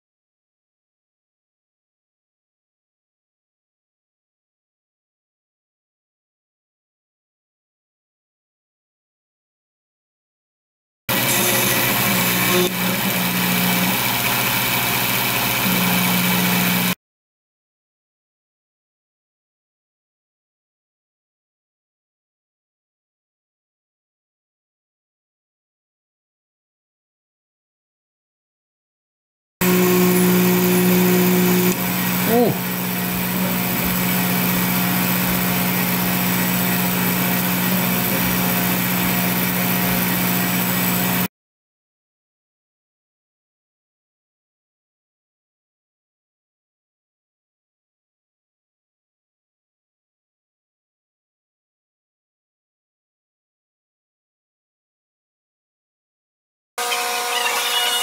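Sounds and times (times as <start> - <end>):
low hum: 29.6 - 39.6.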